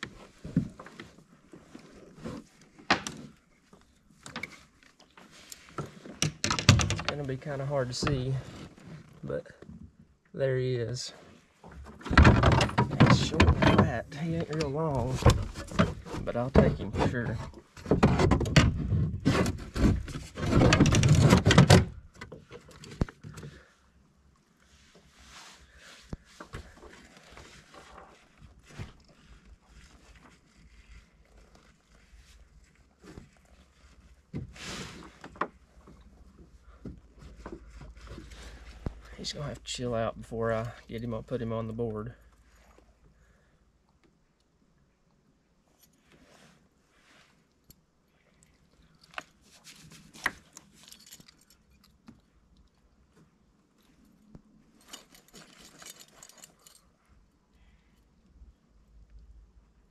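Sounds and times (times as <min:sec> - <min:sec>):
rustling and knocking: 0:00.0 - 0:09.1, 0:11.6 - 0:23.7
handling rustles: 0:11.1 - 0:23.8, 0:24.5 - 0:43.1, 0:45.7 - 0:58.2.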